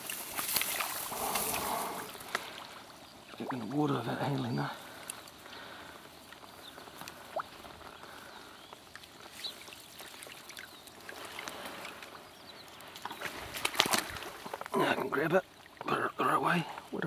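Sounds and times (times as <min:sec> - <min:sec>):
water sloshing and splashing: 0:00.0 - 0:03.7, 0:08.9 - 0:12.2, 0:12.8 - 0:14.7.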